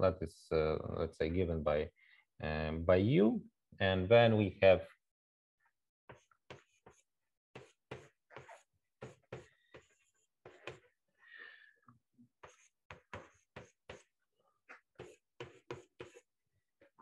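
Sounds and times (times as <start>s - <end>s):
chalk scratching on blackboard: 6.1s - 10.9s, 12.4s - 16.3s
chalk squeak: 7.6s - 10.8s.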